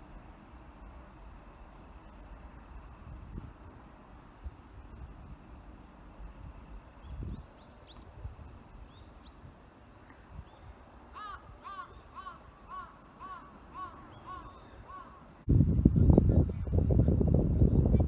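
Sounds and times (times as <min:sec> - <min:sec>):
bird arched calls: 0:10.5 - 0:15.3
bird chirps: 0:11.7 - 0:15.2.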